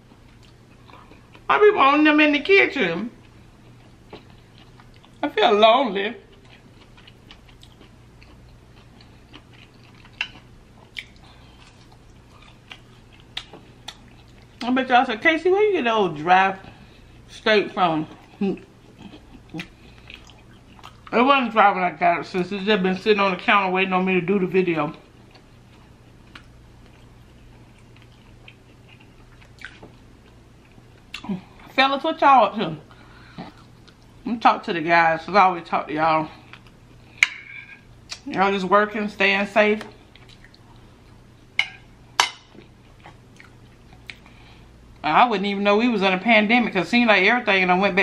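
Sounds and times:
faint steady hum: 0.0s - 48.0s
person chewing: 0.1s - 1.5s, 3.2s - 5.2s, 6.3s - 14.6s, 18.1s - 21.1s, 25.0s - 31.6s, 33.2s - 34.2s, 36.4s - 37.2s, 39.9s - 44.4s.

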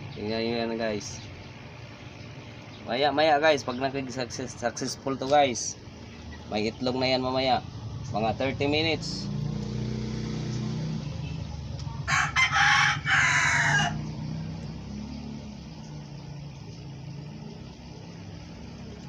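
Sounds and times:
rooster crowing: 12.0s - 14.3s.

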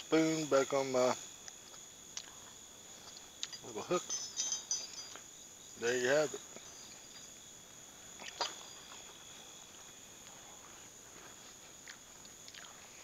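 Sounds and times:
crickets trilling: 0.0s - 13.0s
faint ticks: 1.4s - 3.6s, 11.2s - 13.0s.

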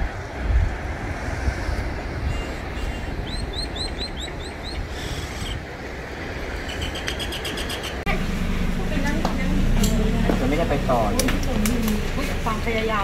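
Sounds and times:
wind on microphone: 0.0s - 8.0s
bird chirping: 2.3s - 5.6s, 6.7s - 8.1s.

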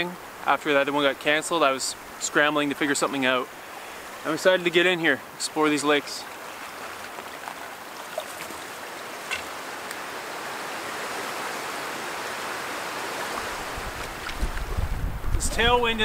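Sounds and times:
waves washing on shore: 0.0s - 16.0s
wind rumble on microphone: 13.3s - 16.0s.

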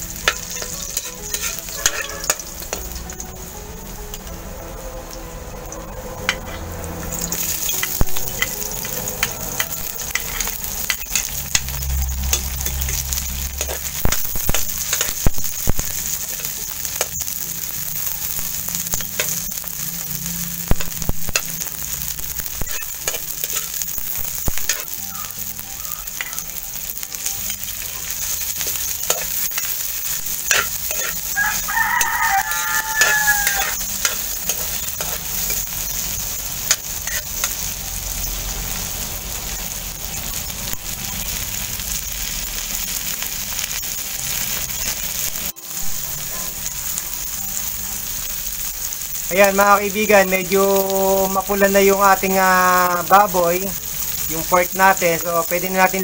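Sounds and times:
onions sizzling in hot oil: 0.0s - 56.0s
metal spatula scraping a wok: 0.1s - 3.2s, 6.1s - 17.4s, 18.9s - 19.8s, 20.6s - 38.5s
rooster crowing: 31.1s - 34.0s.

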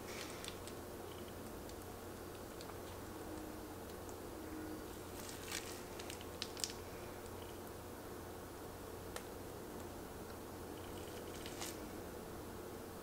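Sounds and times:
plastic bag crinkling: 0.0s - 1.3s, 4.9s - 6.9s, 11.0s - 11.9s
frosting squishing from piping bag: 0.0s - 3.1s, 4.8s - 7.5s, 11.0s - 11.9s
faint steady hum: 0.0s - 13.0s.

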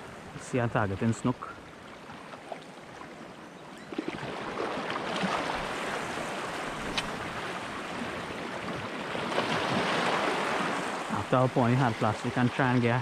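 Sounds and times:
small waves lapping on rocks: 0.0s - 13.0s
sharp click: 6.9s - 7.2s.

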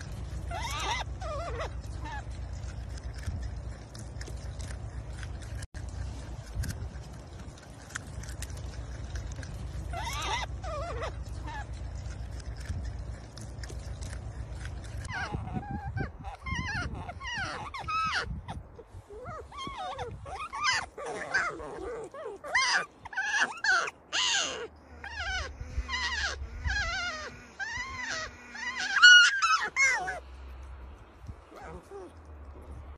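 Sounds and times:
low steady rumble: 0.0s - 32.9s
marmots gnawing: 0.0s - 32.9s
marmots calling: 7.8s - 18.4s.

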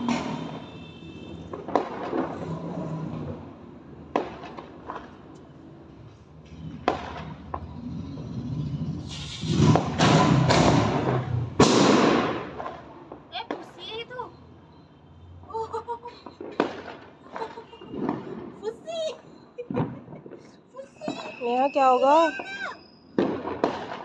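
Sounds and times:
firecracker bangs: 0.0s - 2.8s, 6.6s - 7.8s, 9.0s - 14.2s, 16.3s - 18.8s, 19.7s - 24.0s
firecrackers crackling: 0.0s - 14.4s, 15.6s - 24.0s.

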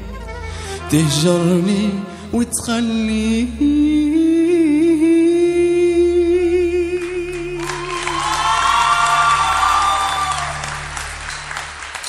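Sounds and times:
man singing a long note: 0.8s - 8.2s
audience applause and cheering: 7.0s - 12.0s.

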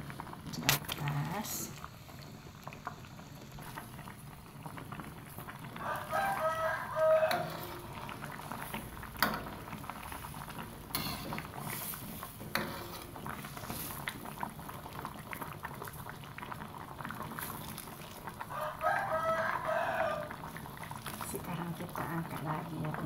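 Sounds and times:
curry bubbling in a wok: 0.0s - 23.0s
chicken calling: 5.8s - 7.7s.

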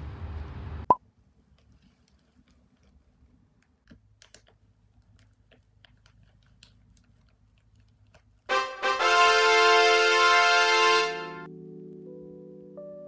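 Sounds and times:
fabric hat clicking and rustling: 1.2s - 9.7s.

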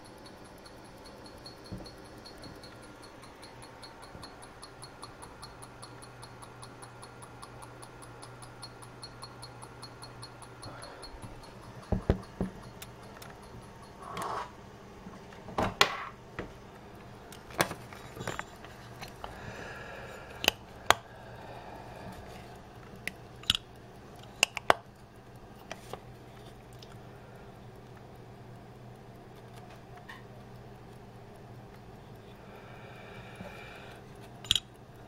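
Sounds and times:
pocket watch covers clicking: 23.0s - 24.9s, 34.4s - 34.7s.

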